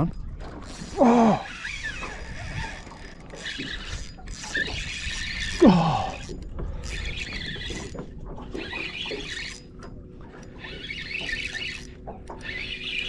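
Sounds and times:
fishing reel drag buzzing: 0.6s - 13.0s.

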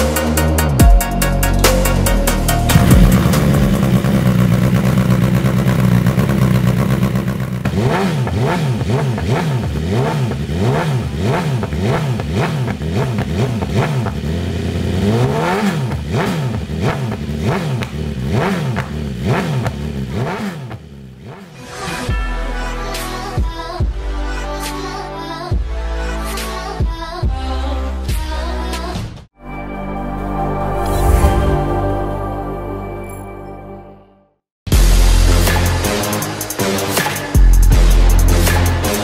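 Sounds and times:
motorcycle engine revving: 1.9s - 21.7s.

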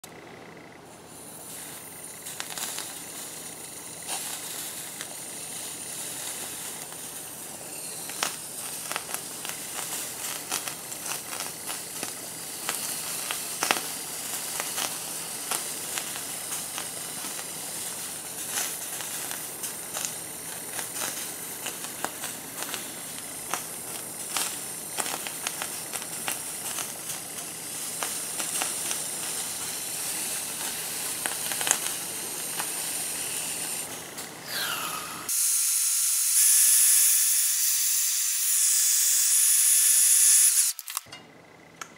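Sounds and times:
propellant hissing on water: 1.0s - 35.3s
ice crackling: 1.4s - 35.3s.

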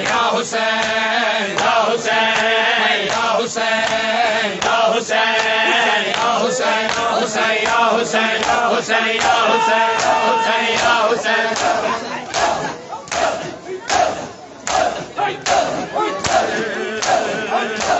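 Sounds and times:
men chanting: 0.0s - 17.9s
hands slapping chests: 2.4s - 8.6s.

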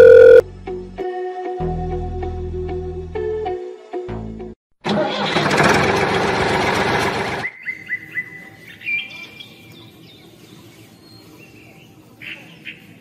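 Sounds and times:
small birds chirping: 7.4s - 13.0s.

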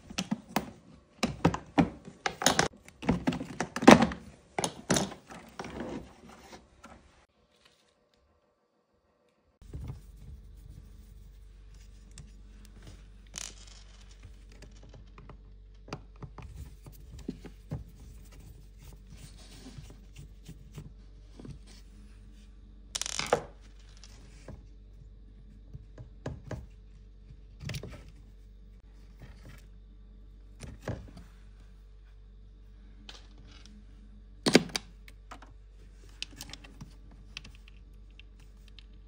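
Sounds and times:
steady low hum: 9.6s - 39.0s.

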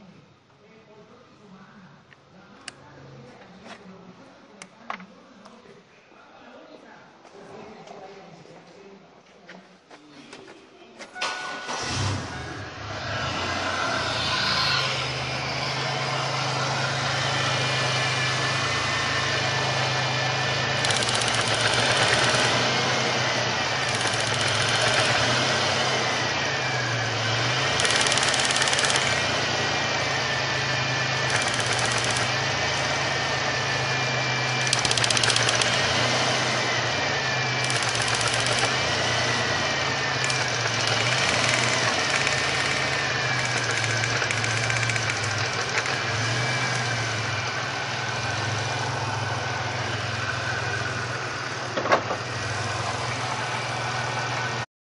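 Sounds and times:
car engine starting and idling: 11.2s - 54.6s
supercharger whine: 11.7s - 54.7s.

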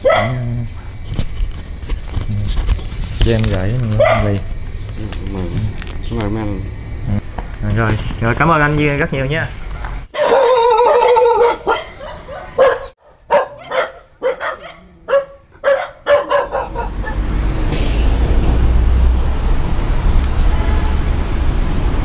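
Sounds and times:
dog barking: 0.0s - 0.5s, 3.9s - 4.4s, 10.1s - 17.3s
street traffic rumble: 0.0s - 22.0s.

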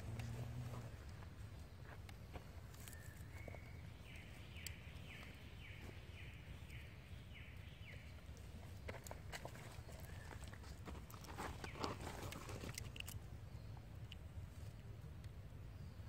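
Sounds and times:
light clicks and rustles: 8.3s - 15.4s.

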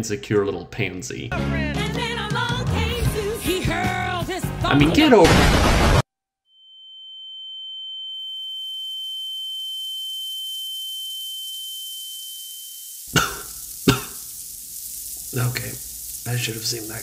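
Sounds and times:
fainter lower tone: 6.5s - 13.0s
high ear-ringing whine: 6.5s - 17.0s
hiss: 11.4s - 17.0s.

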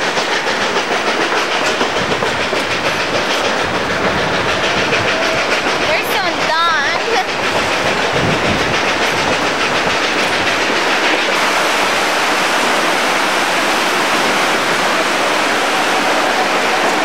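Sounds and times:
train coaches rolling on rails: 0.0s - 17.0s
whitewater rapids: 11.4s - 17.0s.

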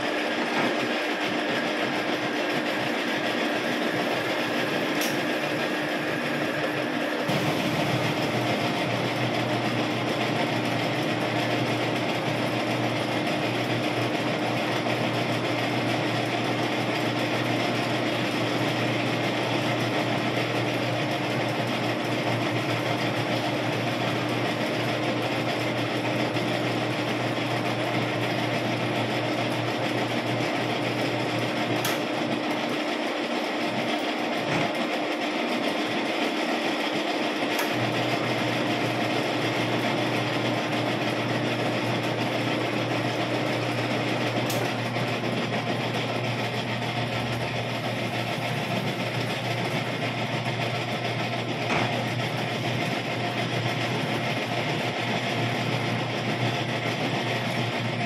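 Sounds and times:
metal lathe running: 0.0s - 58.0s.

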